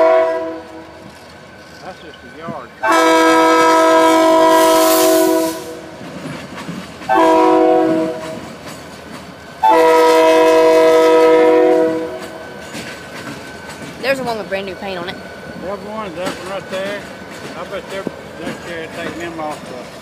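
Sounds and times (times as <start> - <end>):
locomotive air horn blasts: 0.0 - 1.0, 2.8 - 5.9, 7.1 - 8.4, 9.6 - 12.4
train wheels and engines: 0.0 - 20.0.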